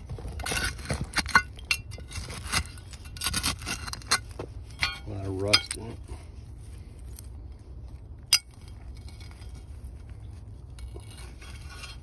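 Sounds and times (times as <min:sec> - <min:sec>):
digging tool clinking on glass: 0:04.8 - 0:05.9.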